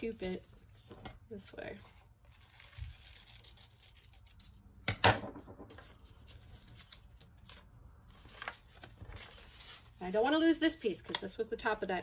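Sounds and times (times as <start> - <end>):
scissors cutting paper: 2.2 - 4.6
paper rustling: 5.8 - 10.6.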